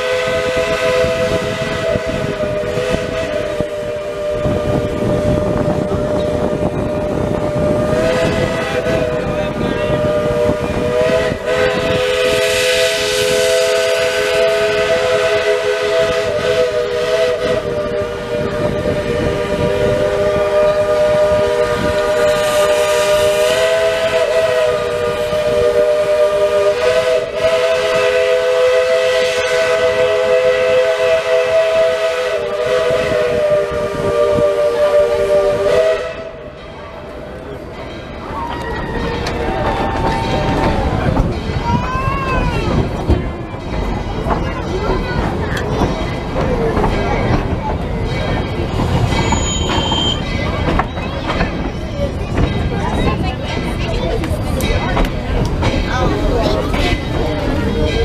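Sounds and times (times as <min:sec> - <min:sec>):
steam hissing: 0:00.0 - 0:36.4
steam locomotive chime whistle: 0:00.0 - 0:37.2, 0:46.9 - 0:55.0.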